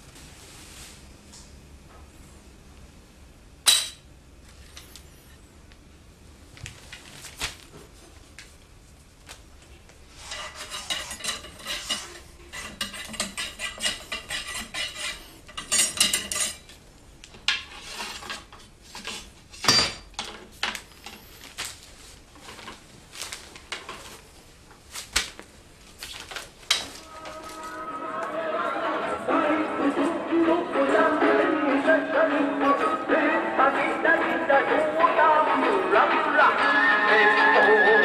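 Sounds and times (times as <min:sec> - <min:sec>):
ramrod scraping in metal barrel: 0:10.2 - 0:16.6.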